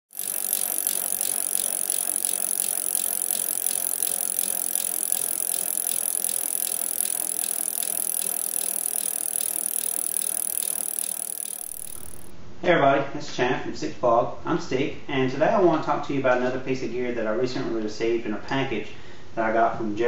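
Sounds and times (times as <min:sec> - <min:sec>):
fast mechanical clicking: 0:00.0 - 0:12.3.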